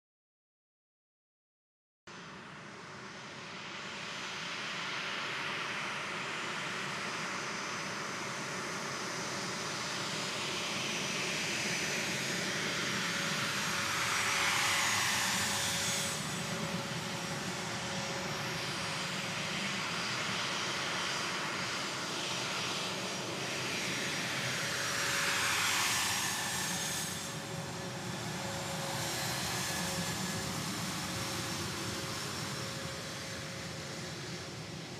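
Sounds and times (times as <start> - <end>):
jet engines whining: 10.1 - 34.9
aircraft rolling past: 22.3 - 34.9.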